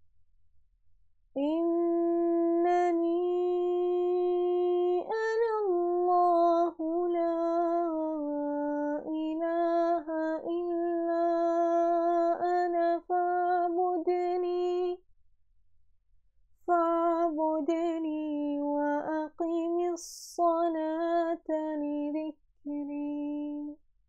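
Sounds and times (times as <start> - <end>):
woman chanting melodically: 1.4 - 15.0.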